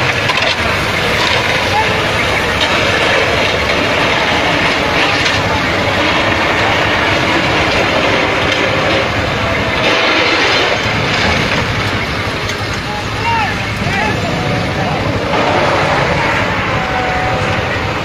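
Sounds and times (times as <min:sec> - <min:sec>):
truck rumbling rattle: 0:00.0 - 0:18.0.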